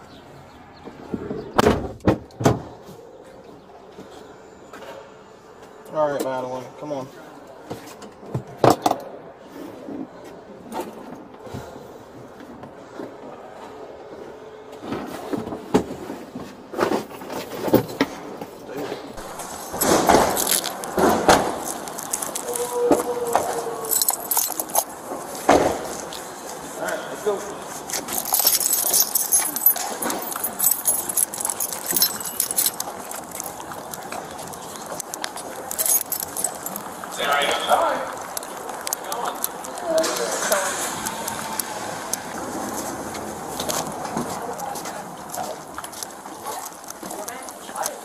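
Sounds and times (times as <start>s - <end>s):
keys and metal gear jingling: 19.2s - 26.6s, 27.7s - 40.1s, 44.5s - 48.0s
clothing rustle: 19.2s - 37.5s.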